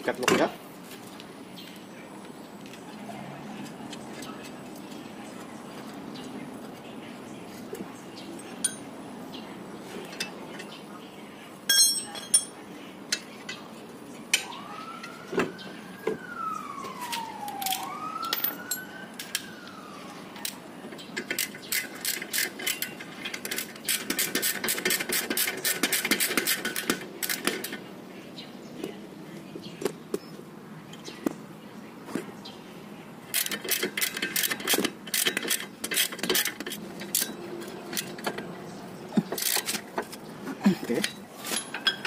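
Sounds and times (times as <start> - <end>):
metal hand tools clinking: 8.5 - 8.9, 11.7 - 13.2, 41.0 - 42.0
siren wailing: 14.4 - 20.6.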